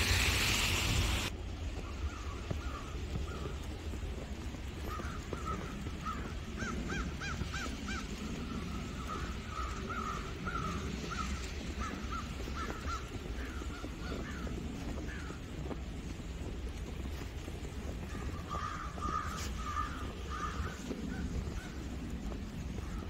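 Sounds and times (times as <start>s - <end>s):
crows cawing: 4.8s - 15.4s, 18.0s - 21.9s, 22.8s - 23.0s.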